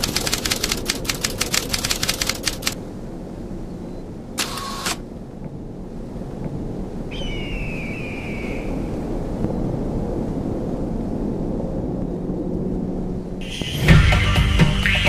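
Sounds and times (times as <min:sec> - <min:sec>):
low rumble: 0:05.0 - 0:15.0
high whistling tone: 0:07.1 - 0:08.9
music: 0:13.4 - 0:15.0.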